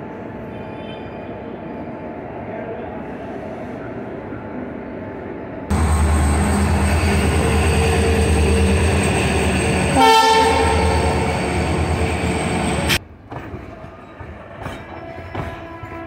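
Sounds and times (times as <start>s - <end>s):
train horn blast: 5.7s - 12.2s, 15.0s - 16.0s
locomotive rumble and whine: 5.7s - 13.0s.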